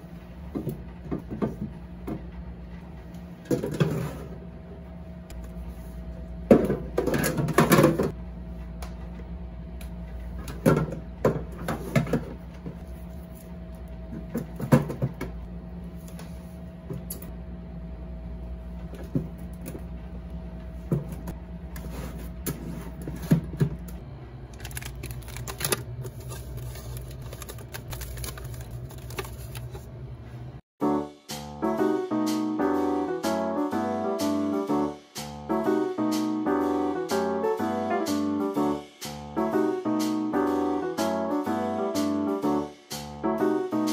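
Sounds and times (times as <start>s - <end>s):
refrigerator hum: 0.0s - 30.6s
plastic rustling: 24.5s - 29.9s.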